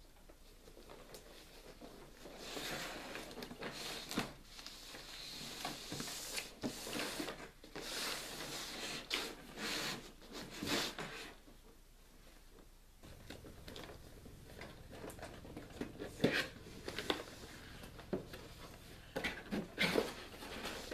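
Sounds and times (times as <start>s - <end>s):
rustling: 0.0s - 20.9s
cardboard sliding and scraping: 2.1s - 11.4s, 14.6s - 20.9s.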